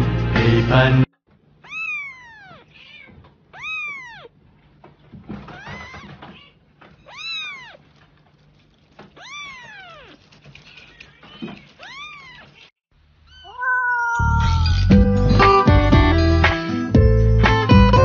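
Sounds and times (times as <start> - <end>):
loud music: 0.0 - 1.0, 14.8 - 18.0
kitten mewing: 1.6 - 4.4, 5.5 - 8.0, 9.2 - 10.3, 13.3 - 14.9.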